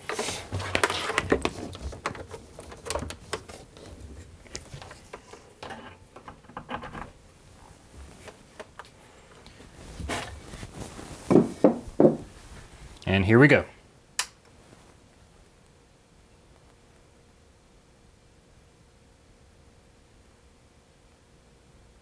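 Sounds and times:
plastic rustling: 9.5s - 11.7s
loud knock: 11.3s - 12.3s.

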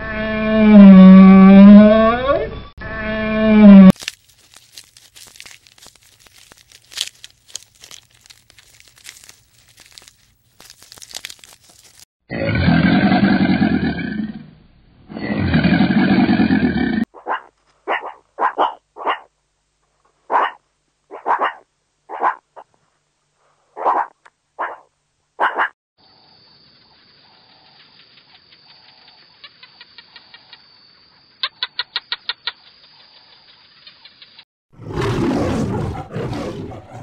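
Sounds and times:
faint clicks and rustles: 4.0s - 12.0s
meerkat barking: 17.2s - 19.3s, 20.3s - 22.4s, 23.8s - 25.7s.

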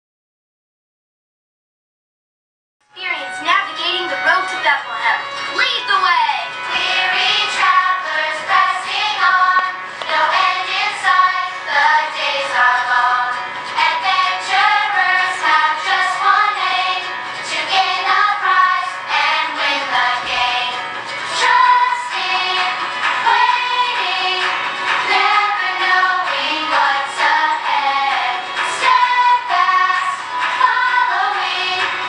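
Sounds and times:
backing music: 2.8s - 32.0s
children's choir singing: 6.5s - 32.0s.

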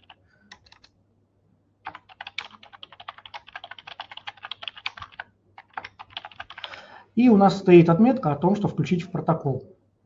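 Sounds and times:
typing on keyboard: 0.0s - 0.9s, 1.8s - 6.8s.

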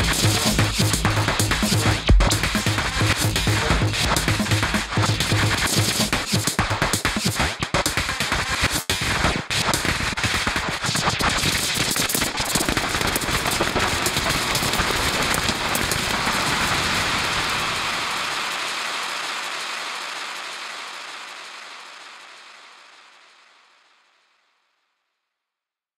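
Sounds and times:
dense crackle of clicks: 11.2s - 20.1s.

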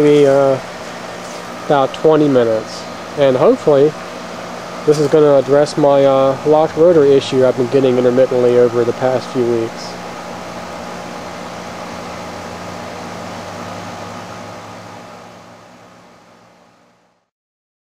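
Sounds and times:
fan air rushing: 0.0s - 17.3s
low compressor hum: 0.0s - 17.3s.

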